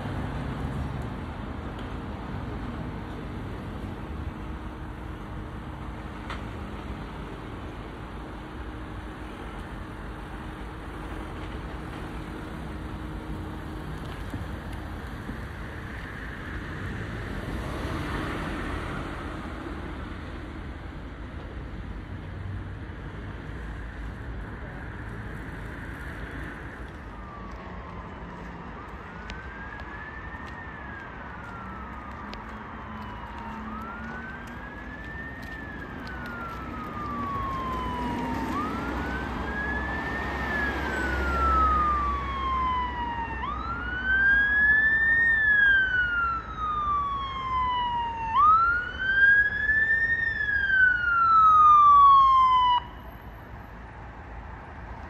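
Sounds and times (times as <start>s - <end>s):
low vehicle rumble: 23.1s - 53.2s
fire engine siren wailing: 25.3s - 53.8s.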